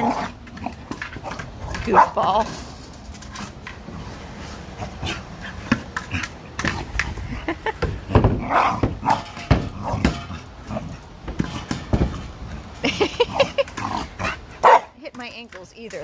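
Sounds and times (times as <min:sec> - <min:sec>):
dog yipping and grunting: 0:04.7 - 0:15.0
hard ball bumping: 0:04.8 - 0:16.0.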